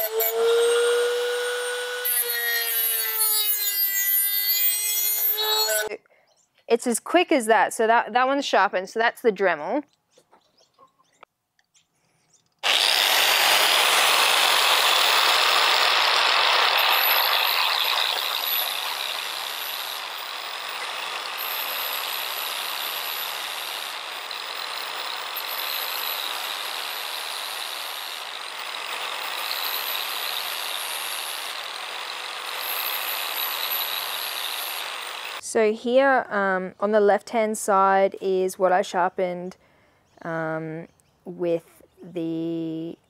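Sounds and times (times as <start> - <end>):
angle grinder grinding steel: 0.0 - 5.9, 12.6 - 35.4.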